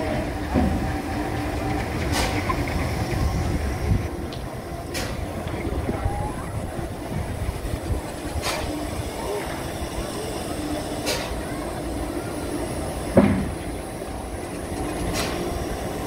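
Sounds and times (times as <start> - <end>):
turntable low rumble: 0.0 - 10.5.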